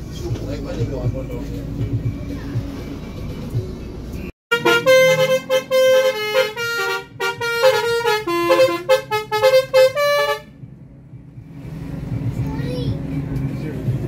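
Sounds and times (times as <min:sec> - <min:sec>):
musical air horn tune: 0:04.5 - 0:10.5.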